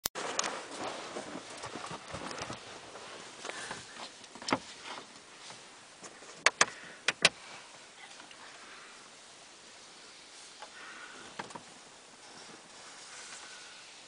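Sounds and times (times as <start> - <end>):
faint rustling: 0.2 - 14.0
sharp clicks: 6.4 - 7.4.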